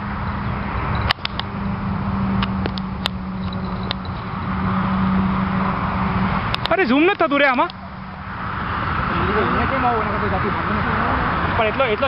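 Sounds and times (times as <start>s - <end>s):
sharp clicks and squeaks: 0.9s - 1.5s, 2.4s - 4.4s, 6.5s - 7.8s.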